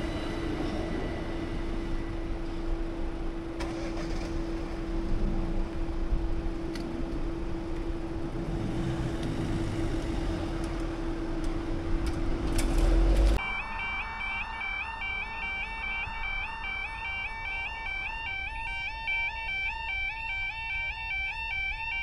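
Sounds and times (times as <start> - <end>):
car engine idling: 0.0 - 13.4
low rumble: 0.0 - 13.4
background road noise: 0.0 - 22.0.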